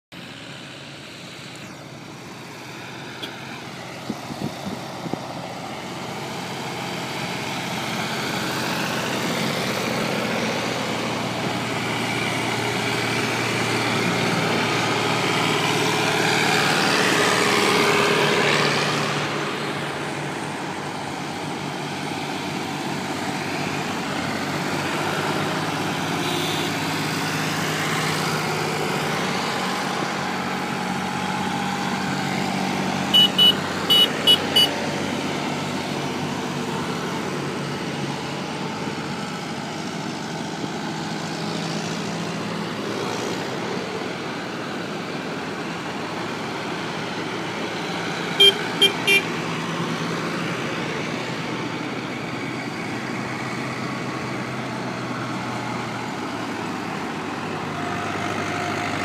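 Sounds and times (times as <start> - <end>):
tractor engines passing: 0.1 - 59.0.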